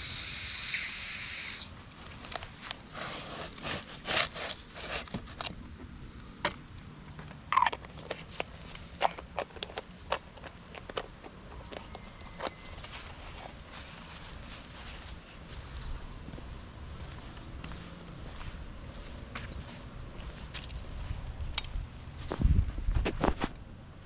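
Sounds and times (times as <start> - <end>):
caulking gun hissing: 0.0 - 1.8.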